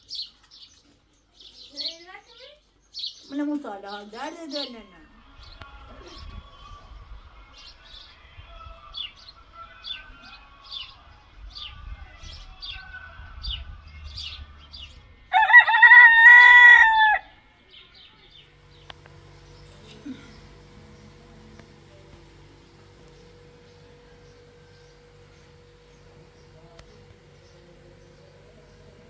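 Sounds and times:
small birds chirping: 0:00.0 - 0:29.0
rooster crowing: 0:15.3 - 0:17.4.

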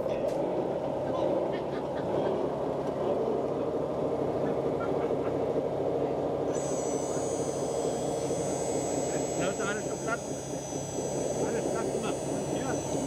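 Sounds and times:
buzzing mechanical drone: 0:00.0 - 0:13.0
thin high whine: 0:06.5 - 0:13.0.

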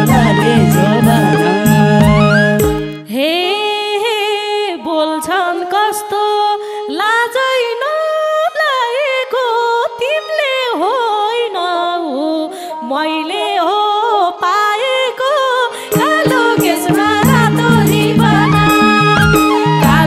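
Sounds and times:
sliding ornamented folk melody: 0:00.0 - 0:03.1, 0:15.5 - 0:20.0.

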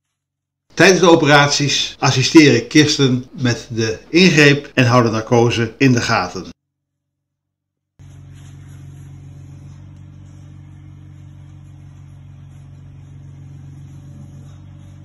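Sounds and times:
low mechanical hum: 0:08.0 - 0:15.0.

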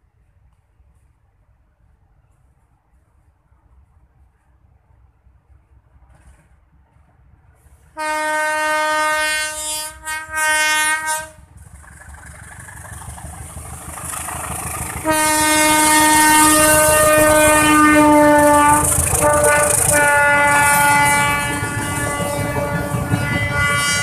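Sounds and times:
locomotive engine and rail noise: 0:00.0 - 0:24.0
train horn blasts: 0:07.9 - 0:11.5, 0:14.9 - 0:24.0
wheels clattering over rail joints: 0:11.5 - 0:15.9.

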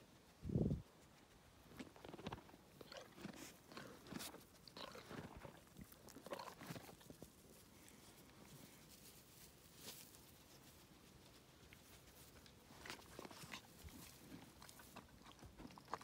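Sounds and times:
horse crunching carrots: 0:01.4 - 0:09.2, 0:11.1 - 0:16.0.

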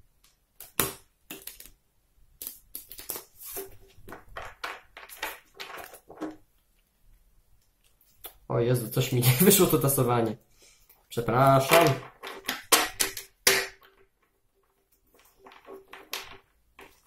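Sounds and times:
playing cards riffle-shuffled: 0:02.4 - 0:06.2.

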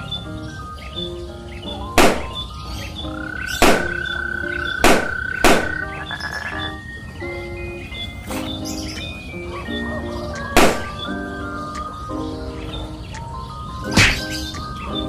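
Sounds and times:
soft background music: 0:00.0 - 0:15.0
balloons popping: 0:04.8 - 0:05.8.

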